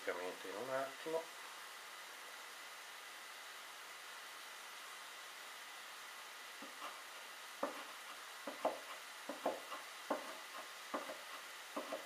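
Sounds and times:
knife chopping on wooden board: 7.6 - 12.0.

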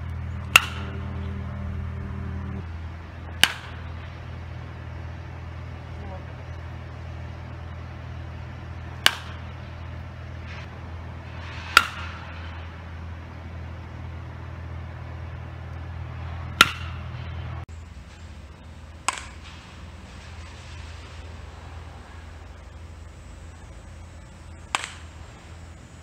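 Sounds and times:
baseball bat cracking: 0.2 - 1.8, 3.2 - 4.7, 8.8 - 10.2, 11.4 - 12.8, 15.6 - 17.6, 19.0 - 20.5, 24.6 - 25.9.

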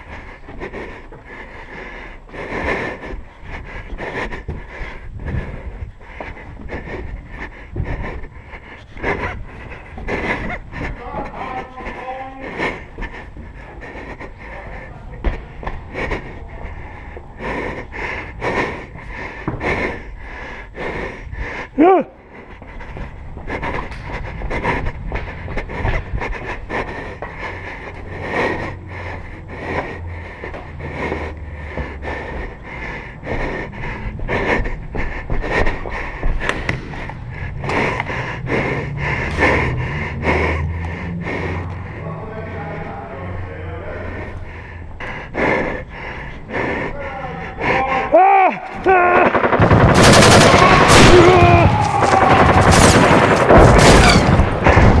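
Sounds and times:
person panting hard: 0.0 - 55.0
airsoft guns firing in bursts: 48.8 - 55.0.

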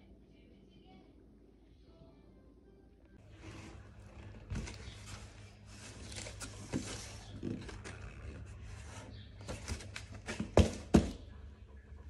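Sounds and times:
cardboard rubbing and scraping: 3.2 - 11.1.

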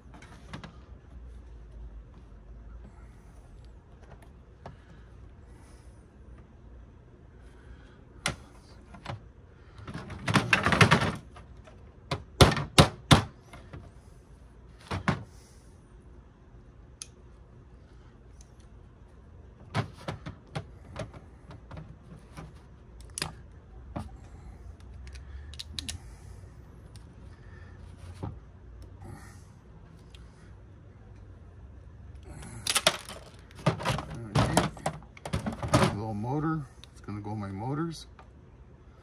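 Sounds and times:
metal parts clattering on table: 32.6 - 36.0.

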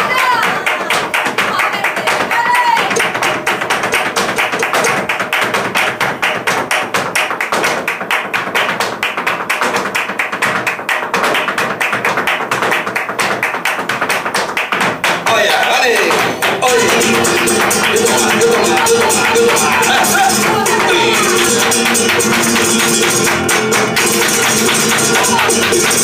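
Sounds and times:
hand-clapping: 0.0 - 26.0
flamenco heel and toe strikes: 0.1 - 26.0
guitar accompaniment: 2.6 - 7.2, 16.1 - 26.0.

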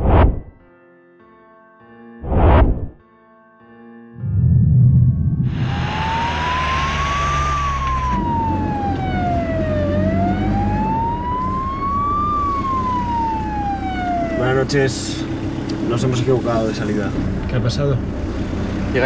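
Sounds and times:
vehicle engine and road noise: 4.2 - 19.0
ambulance siren wailing: 5.4 - 15.6.

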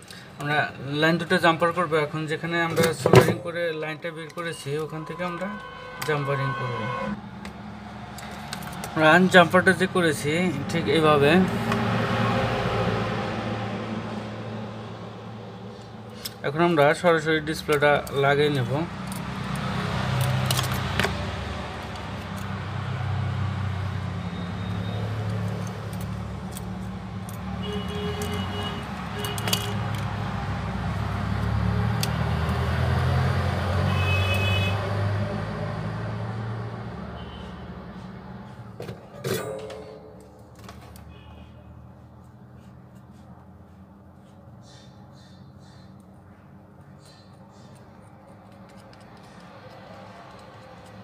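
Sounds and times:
motor vehicle rumble: 17.4 - 34.0
plastic phone parts clicking: 47.8 - 51.0.

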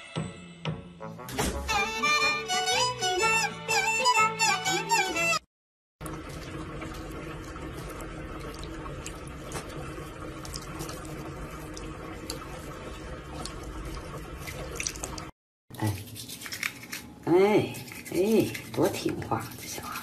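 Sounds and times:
water running from a faucet: 6.0 - 17.0.

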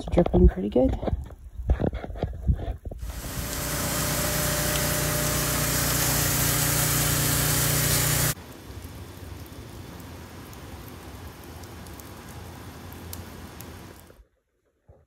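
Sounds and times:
sap boiling in a pan: 3.0 - 14.2
wood fire crackling: 3.0 - 14.2.

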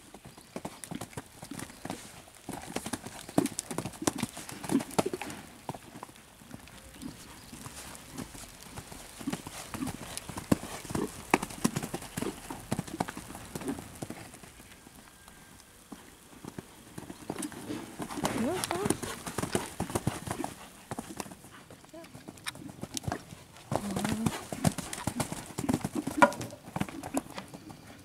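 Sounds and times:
hoofbeats on sand: 6.4 - 28.0.

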